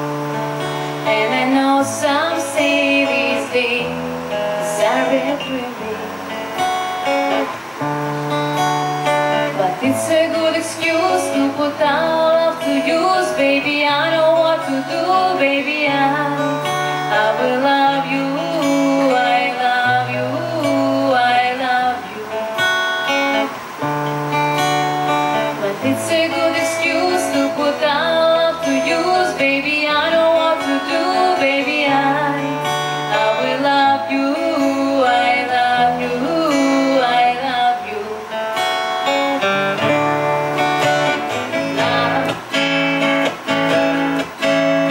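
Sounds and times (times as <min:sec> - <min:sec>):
acoustic guitar: 0:00.0 - 0:44.9
woman singing: 0:00.6 - 0:06.4, 0:09.2 - 0:22.6, 0:25.3 - 0:38.4, 0:41.0 - 0:42.8.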